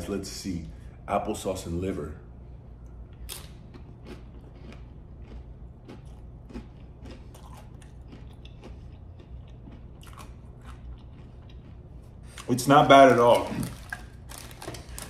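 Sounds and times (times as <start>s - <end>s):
person chewing crackers: 3.1s - 15.0s.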